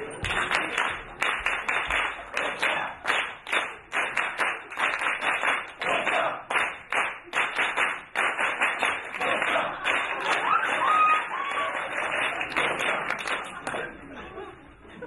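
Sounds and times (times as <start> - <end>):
audience clapping in rhythm: 0.0 - 14.0.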